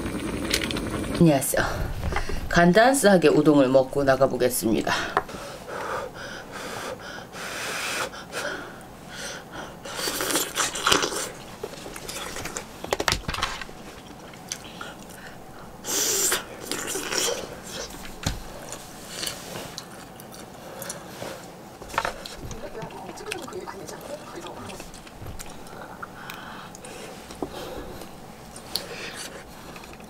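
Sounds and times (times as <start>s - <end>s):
person chewing food: 9.9s - 12.8s, 16.3s - 30.0s.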